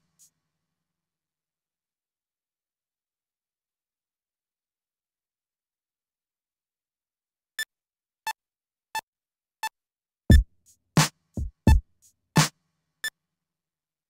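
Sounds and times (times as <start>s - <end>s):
kick drum and snare hits: 10.3s - 11.8s.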